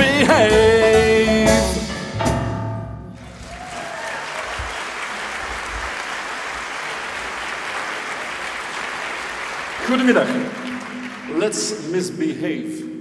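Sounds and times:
audience applauding: 3.2 - 11.8.

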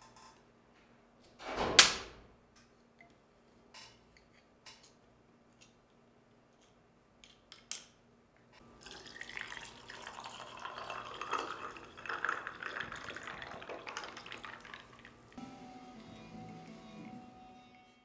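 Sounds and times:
liquid pouring and splashing: 8.8 - 15.3.

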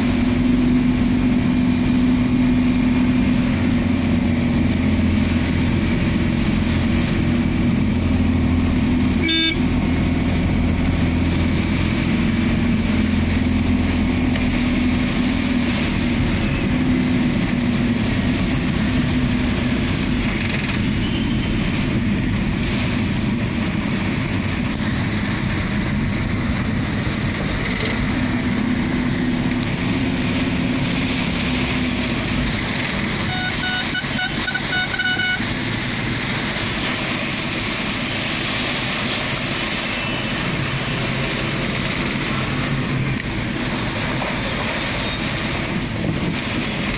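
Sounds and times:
engine and road hum: 0.0 - 46.9
heavy rain on a vehicle: 0.0 - 46.9
vehicle horn pulses: 9.2 - 9.7, 33.2 - 35.4.

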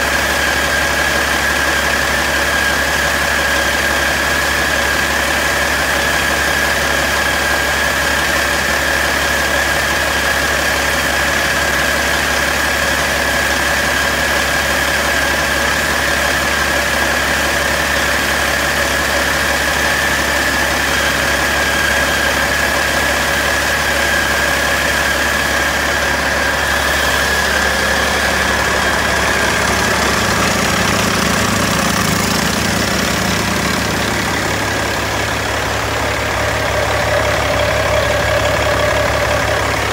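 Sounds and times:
diesel engine idling: 0.0 - 39.9
high whine: 23.7 - 39.9.

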